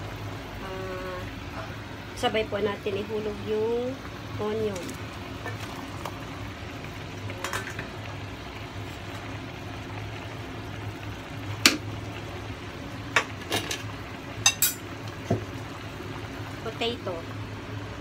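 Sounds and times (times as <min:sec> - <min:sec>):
food dropped into a pot: 0:07.4 - 0:07.9.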